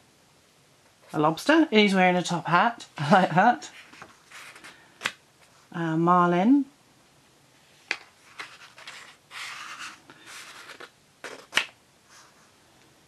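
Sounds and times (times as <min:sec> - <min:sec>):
paper rustling and sliding: 0:03.7 - 0:05.6, 0:07.6 - 0:12.5.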